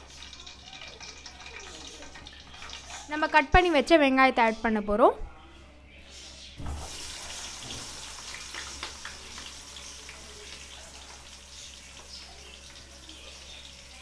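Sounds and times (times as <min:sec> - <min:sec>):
onions sizzling in hot oil: 0:06.6 - 0:14.0.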